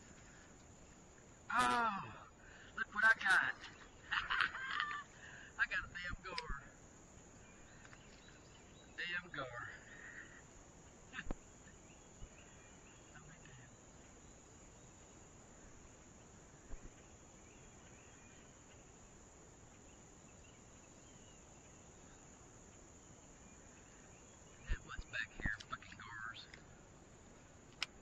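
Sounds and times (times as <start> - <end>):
faint insect chirps: 0.0 - 28.0
soft clicks: 27.7 - 28.0.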